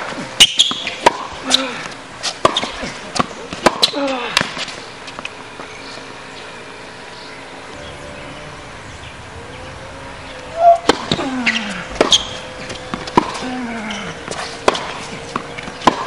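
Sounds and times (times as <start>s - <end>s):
tennis racket hitting ball: 0.0s - 5.3s, 10.5s - 16.0s
tennis ball bouncing: 0.0s - 5.7s, 10.3s - 16.0s.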